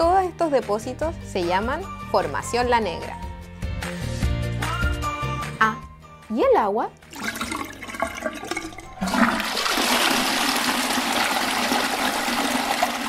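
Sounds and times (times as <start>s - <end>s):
water rushing: 7.2s - 13.0s.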